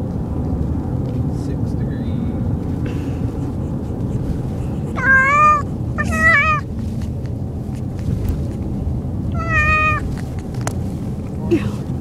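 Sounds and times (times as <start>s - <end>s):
cat meowing: 4.9s - 6.7s, 9.3s - 10.1s.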